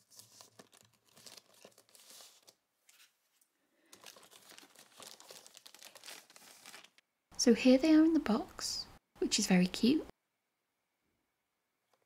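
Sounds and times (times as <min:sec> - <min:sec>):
plastic bag crinkling: 0:00.0 - 0:02.6, 0:03.9 - 0:07.0.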